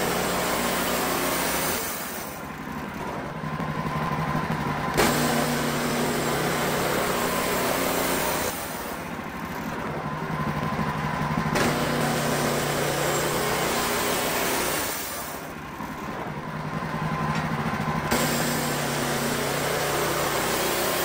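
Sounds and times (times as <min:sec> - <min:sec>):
band blade sawing wood: 0:00.0 - 0:02.4, 0:05.0 - 0:09.0, 0:11.6 - 0:15.5, 0:18.1 - 0:21.0
sawmill engine running: 0:00.0 - 0:21.0.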